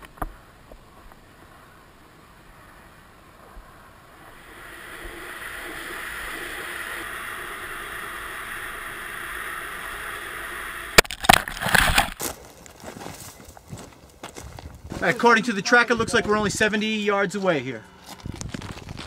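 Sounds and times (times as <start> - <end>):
air rushing past camera: 3.5 - 11.0.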